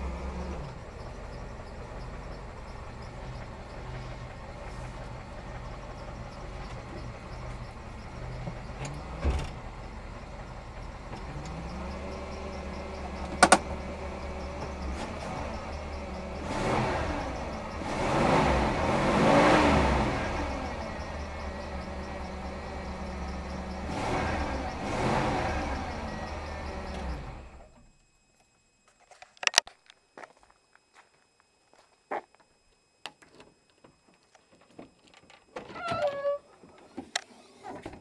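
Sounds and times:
car engine idling and revving: 0.0 - 27.9.

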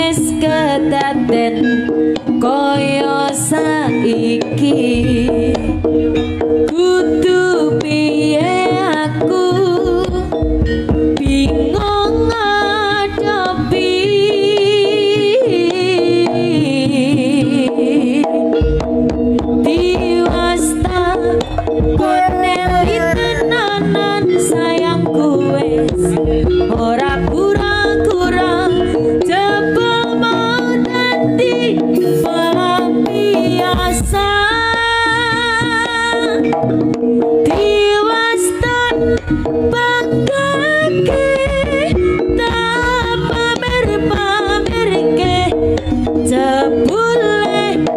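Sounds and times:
wavering melody: 18.5 - 33.3, 39.7 - 47.6
barrel hand drums beating: 18.6 - 47.9.

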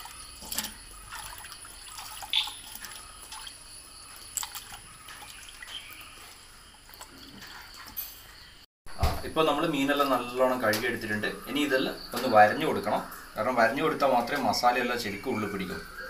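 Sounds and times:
water splashing in bowl: 0.0 - 8.4.

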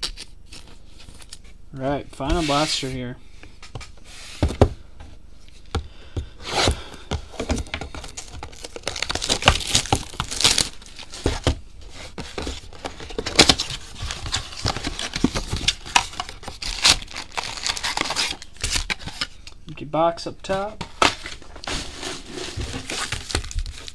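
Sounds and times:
cardboard and wrappers crinkling: 7.4 - 19.6, 20.9 - 23.9.

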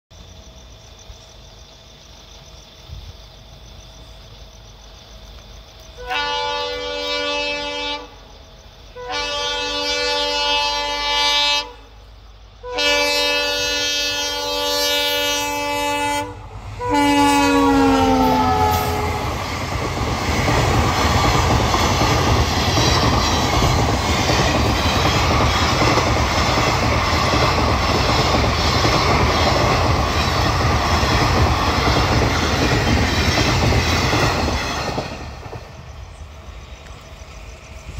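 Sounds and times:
train horn blasts: 6.0 - 8.2, 9.0 - 12.0, 12.6 - 19.5
train coaches rumbling and clattering: 12.9 - 37.9.

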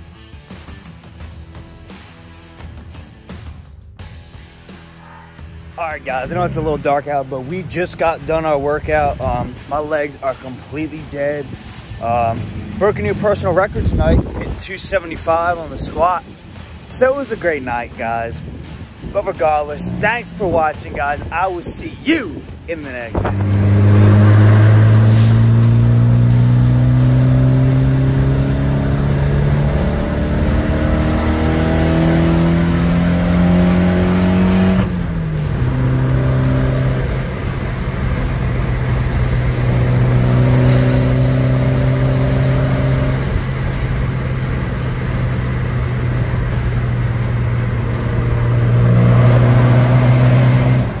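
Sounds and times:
car engine accelerating: 4.7 - 14.6, 18.4 - 21.1, 23.1 - 51.0.

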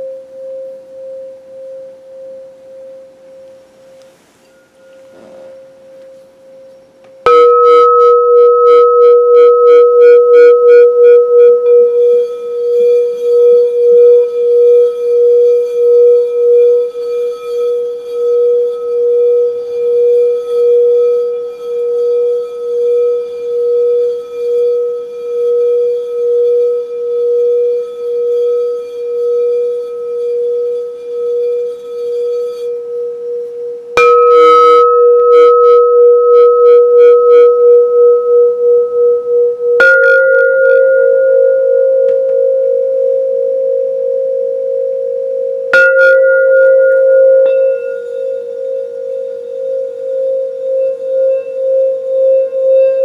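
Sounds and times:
singing bowl ringing: 0.0 - 53.0.

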